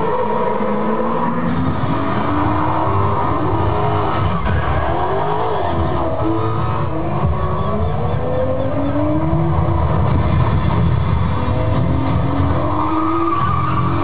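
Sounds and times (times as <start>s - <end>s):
engines revving: 0.0s - 14.0s
tyre squeal: 2.1s - 10.0s, 12.5s - 14.0s.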